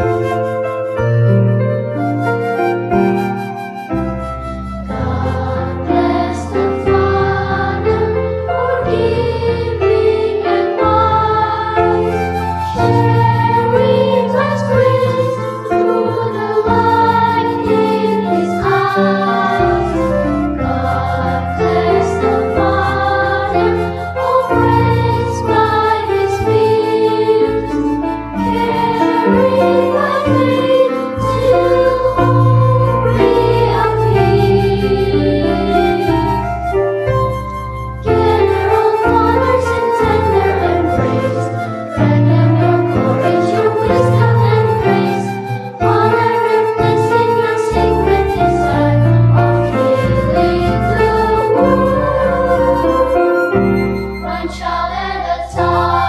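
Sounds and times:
instrumental accompaniment: 0.0s - 56.0s
children's choir singing: 4.8s - 36.7s, 38.0s - 56.0s.

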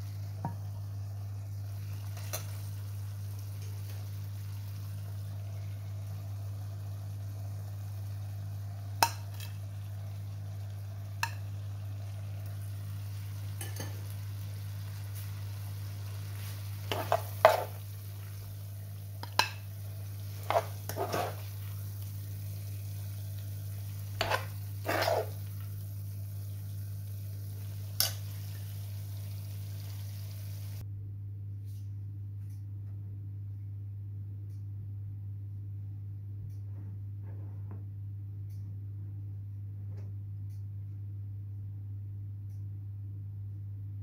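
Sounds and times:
steady low hum: 0.0s - 44.0s
cutlery clinking on plate and pan: 13.6s - 14.1s, 16.9s - 17.8s, 20.4s - 21.5s, 24.2s - 25.4s, 28.0s - 28.3s.

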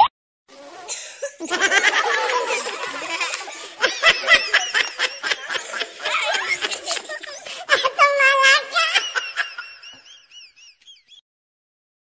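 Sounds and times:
children laughing and calling out: 0.5s - 10.0s.

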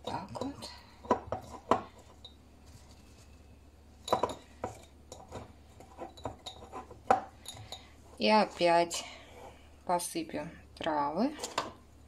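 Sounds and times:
glass jar knocking and clinking: 4.0s - 7.9s.

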